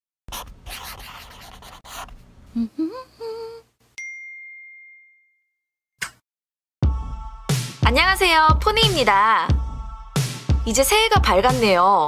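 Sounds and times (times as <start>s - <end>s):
bright ding: 4.0s - 5.6s.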